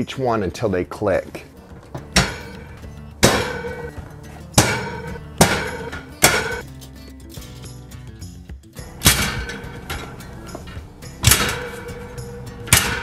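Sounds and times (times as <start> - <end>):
metal shelf clicking into place: 8.9 - 13.0.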